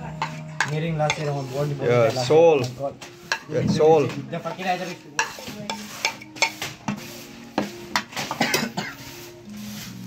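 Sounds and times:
metal spoon clinking on steel bowl: 0.2 - 1.4, 3.2 - 3.6, 4.4 - 6.7.

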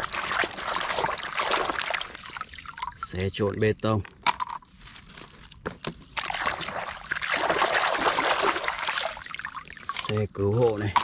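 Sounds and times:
water splashing in a tub: 0.0 - 3.4, 6.2 - 11.0.

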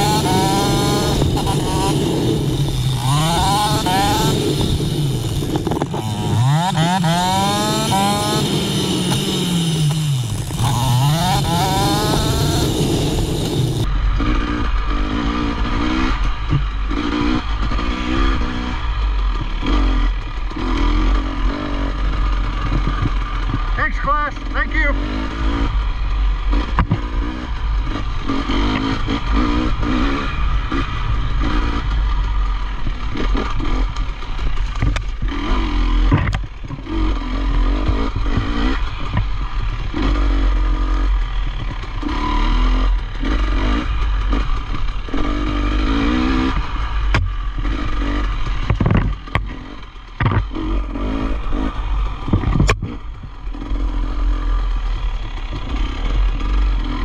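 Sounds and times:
dirt bike engine revving: 0.0 - 57.0
clatter and sharp knocks: 22.2 - 23.7, 26.6 - 27.1, 33.1 - 35.4, 36.0 - 36.8, 46.5 - 50.5, 52.1 - 53.2.

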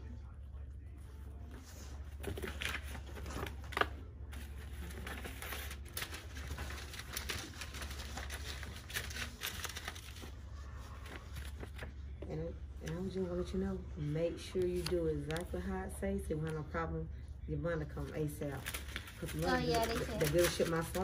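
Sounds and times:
paper rustling: 1.5 - 12.2, 18.5 - 21.0.

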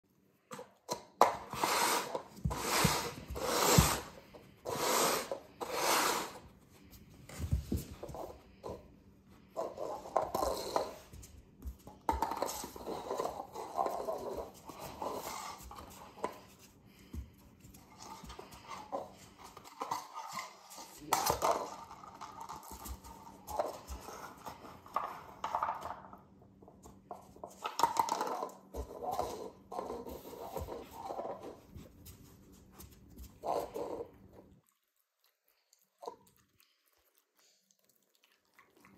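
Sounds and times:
paper cups scraping across floor: 1.2 - 6.5, 9.5 - 11.2, 12.1 - 16.7
puppy knocking cups over: 27.5 - 31.3.

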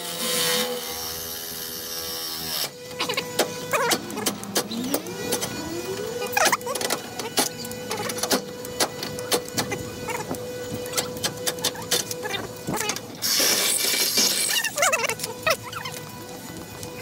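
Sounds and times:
cordless drill motor: 0.0 - 17.0
sharp clicks and knocks: 2.9 - 16.1.

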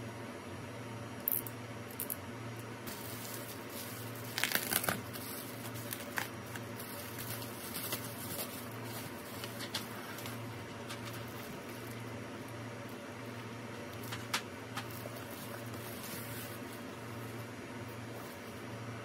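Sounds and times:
bubble wrap crinkling: 2.8 - 12.1, 13.9 - 18.6.

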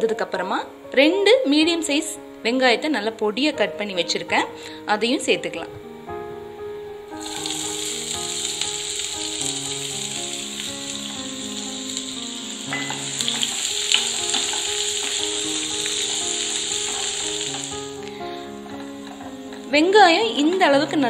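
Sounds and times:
soft background music: 0.0 - 21.0
onions sizzling in hot oil: 7.2 - 21.0
spatula scraping a pan: 12.8 - 19.7.

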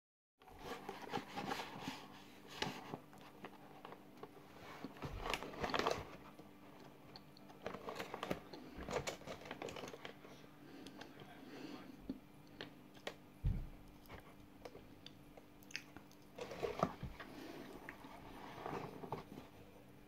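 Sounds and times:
powder being chewed: 4.0 - 10.2, 13.9 - 16.9.

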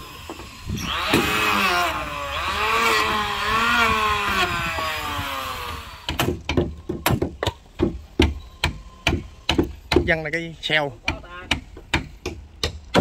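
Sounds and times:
woodworking power tool cutting: 0.0 - 6.4.

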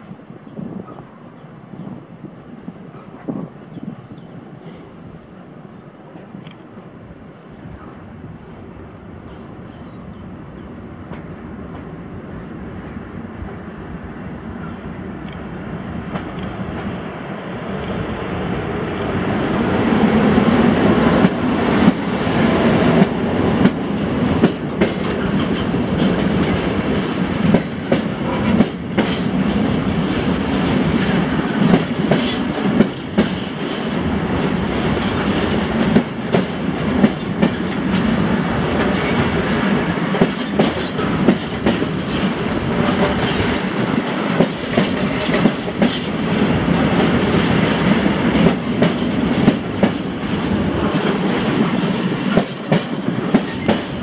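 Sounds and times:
freight train approaching: 0.0 - 54.0
train wheels clacking over rail joints: 20.9 - 54.0.

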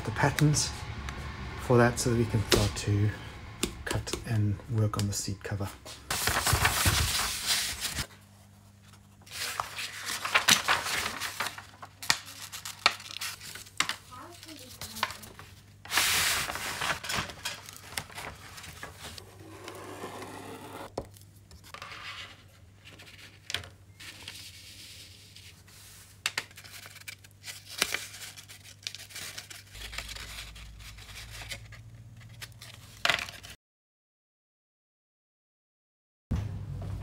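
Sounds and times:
deeper hum: 0.0 - 4.8.

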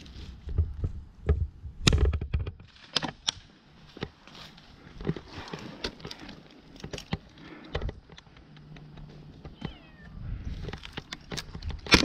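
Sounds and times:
sharp clicks and knocks: 0.4 - 3.4, 5.0 - 9.8, 10.6 - 12.0
kitten meowing: 9.6 - 10.2.

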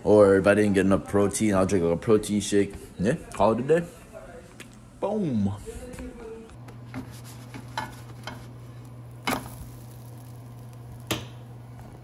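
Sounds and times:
steady low hum: 2.7 - 12.0
pancake sizzling in a pan: 6.8 - 12.0.

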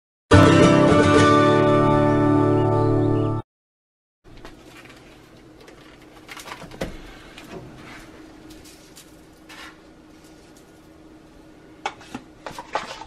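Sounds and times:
steady low hum: 4.3 - 12.8.

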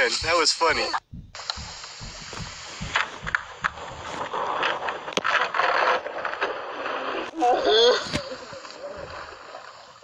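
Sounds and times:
dog paws knocking on boat: 0.0 - 4.6.

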